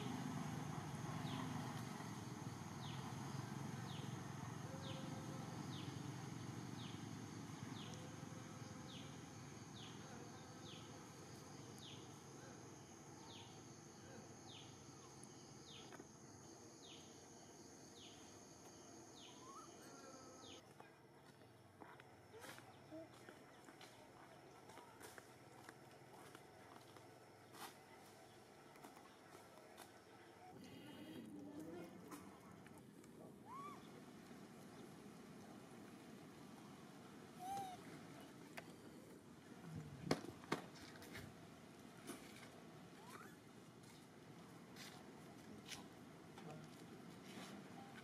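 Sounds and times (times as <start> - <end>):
high insect drone: 0.0 - 20.6.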